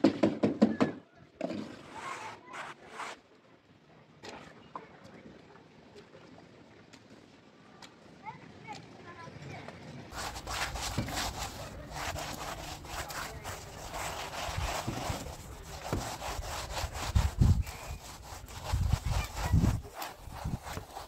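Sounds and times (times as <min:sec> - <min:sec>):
hand tool rasping over wet cement: 0:10.1 - 0:21.0.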